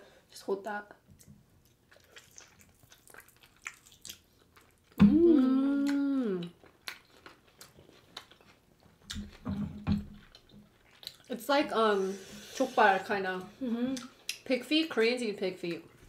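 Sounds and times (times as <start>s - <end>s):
wet chewing and mouth clicks: 1.1s - 5.2s, 5.8s - 11.3s, 13.9s - 14.5s
closed-mouth hum of enjoyment: 5.0s - 6.6s, 13.6s - 14.2s.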